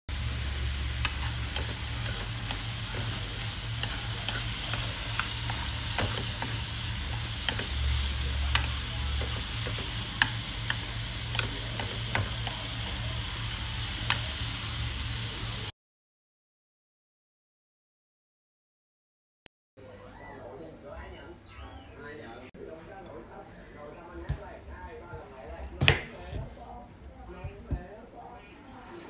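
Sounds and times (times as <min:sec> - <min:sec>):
food sizzling in a frying pan: 0:00.1 - 0:15.7
chopsticks tapping a pan: 0:00.8 - 0:13.0, 0:14.0 - 0:14.3.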